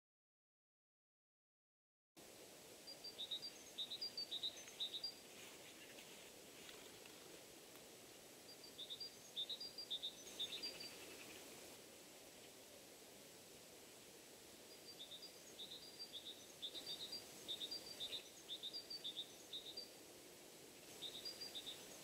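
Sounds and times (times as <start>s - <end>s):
faint outdoor hiss: 2.2s - 22.0s
small bird chirping: 2.9s - 6.1s, 8.5s - 11.5s, 14.7s - 20.0s, 20.8s - 22.0s.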